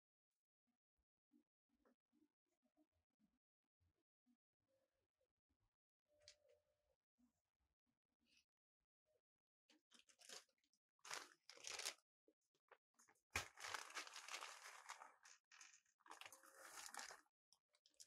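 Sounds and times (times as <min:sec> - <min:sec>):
dry crunching and crinkling: 0:10.0 - 0:10.4, 0:11.0 - 0:12.0, 0:13.4 - 0:17.2.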